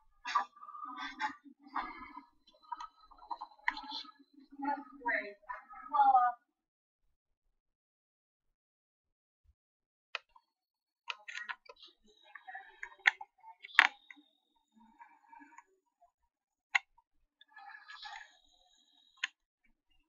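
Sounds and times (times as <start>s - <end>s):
computer mouse clicks: 2.6s - 4.1s, 10.2s - 10.4s, 11.1s - 14.2s.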